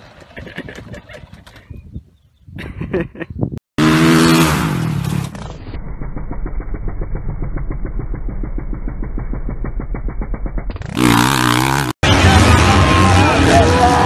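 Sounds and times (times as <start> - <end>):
dirt bike engine revving: 3.8 - 14.0.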